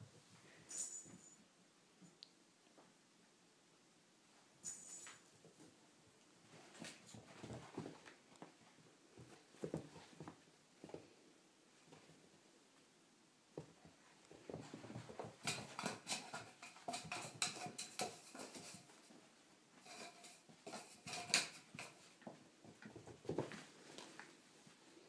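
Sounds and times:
puppy paws pattering on floor: 0:05.1 - 0:11.1, 0:13.5 - 0:25.0.

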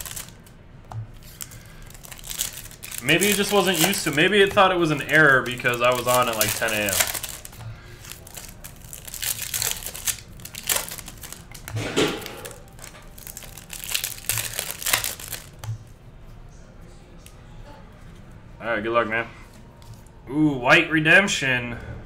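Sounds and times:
foil wrapper crinkling and tearing: 0:00.0 - 0:00.5, 0:01.2 - 0:15.7.

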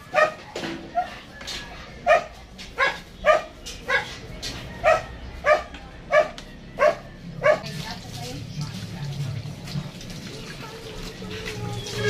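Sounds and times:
dog barking: 0:00.0 - 0:01.2, 0:02.0 - 0:04.1, 0:04.7 - 0:07.7.

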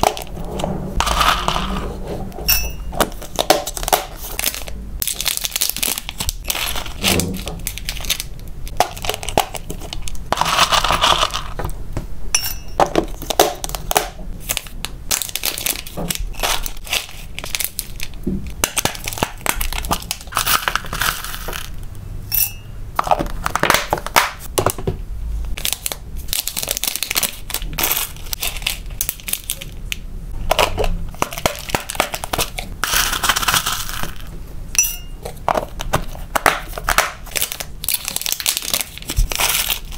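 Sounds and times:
kitchen scale beeps: 0:02.5 - 0:03.0, 0:34.8 - 0:35.2
plastic packaging crinkling: 0:03.0 - 0:11.6, 0:12.8 - 0:21.8, 0:25.5 - 0:34.4, 0:35.2 - 0:39.9
snack flakes crackling and rustling: 0:03.1 - 0:11.6, 0:13.2 - 0:21.8, 0:25.5 - 0:34.3, 0:35.3 - 0:39.9.

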